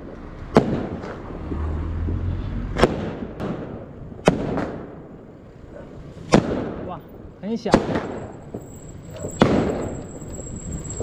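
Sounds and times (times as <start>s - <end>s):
firecracker bangs: 0.0s - 1.2s, 2.8s - 5.3s, 6.2s - 7.0s, 7.6s - 10.4s
faint firecracker pops: 2.8s - 5.0s, 6.3s - 6.8s.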